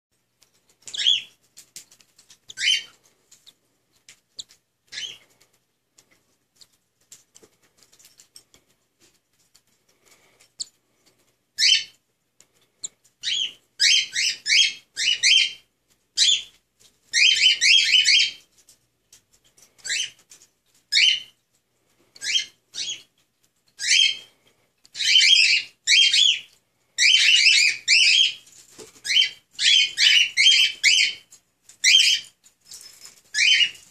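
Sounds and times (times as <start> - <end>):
cockatiel chicks chirping: 0.8 - 5.5, 11.6 - 12.0, 12.6 - 18.5, 19.6 - 20.2, 20.9 - 21.4, 22.1 - 32.4, 33.3 - 33.9.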